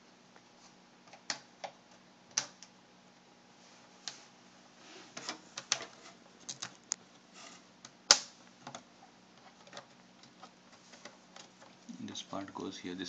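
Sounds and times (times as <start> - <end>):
sharp plastic snap: 8.1 - 8.4.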